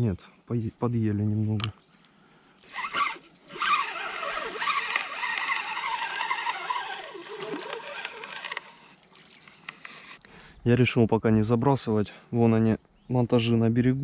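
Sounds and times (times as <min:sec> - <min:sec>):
fishing line whirring off reel: 0:02.6 - 0:09.0.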